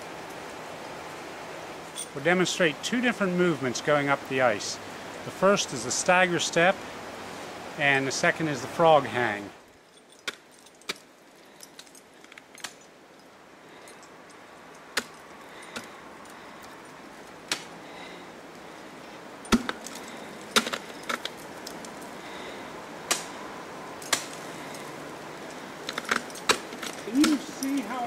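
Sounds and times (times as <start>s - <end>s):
low steady hiss: 0.0s - 28.0s
ice axe striking ice: 19.4s - 21.3s, 25.9s - 27.5s.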